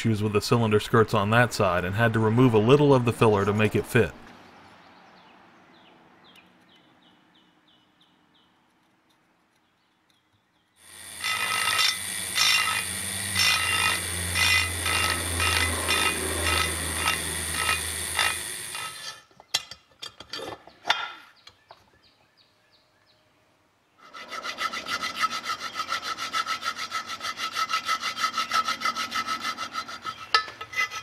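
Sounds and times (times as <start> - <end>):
rotary tool grinding: 10.8 - 19.3, 24.0 - 31.0.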